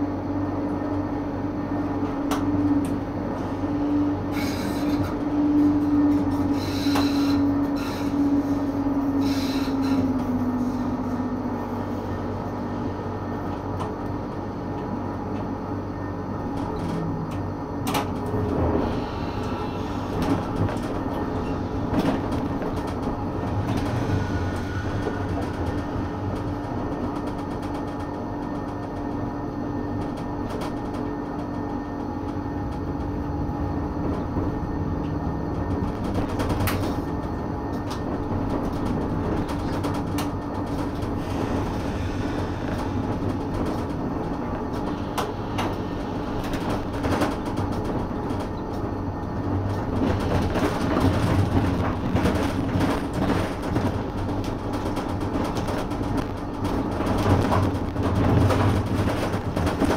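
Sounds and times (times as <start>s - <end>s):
tram motor hum: 0.0s - 59.9s
rolling wheel noise: 32.6s - 59.9s
wheels clicking on rails: 34.0s - 59.9s.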